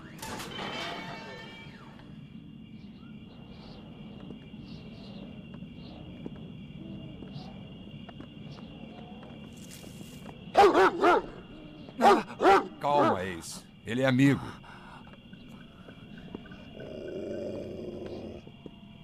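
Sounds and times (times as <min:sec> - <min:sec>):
crickets trilling: 0:00.0 - 0:19.0
large dog barking loudly: 0:12.0 - 0:13.1.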